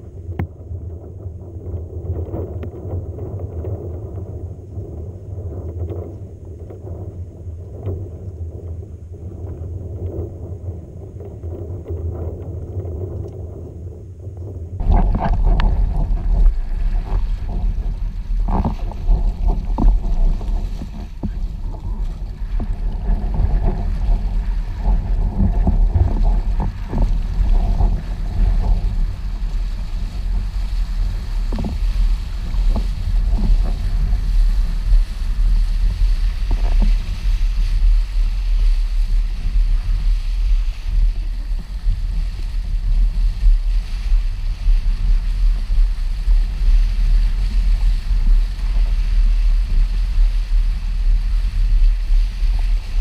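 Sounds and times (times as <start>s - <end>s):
wind rumbling on microphone: 0.0s - 53.0s
water rushing and splashing: 14.8s - 53.0s.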